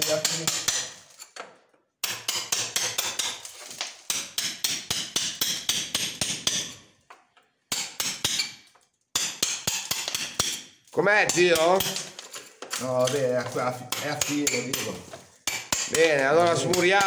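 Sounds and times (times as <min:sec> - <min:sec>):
hammer striking chisel into stone: 0:00.0 - 0:01.0, 0:02.0 - 0:03.4, 0:04.1 - 0:06.8, 0:07.7 - 0:12.1, 0:13.0 - 0:17.0.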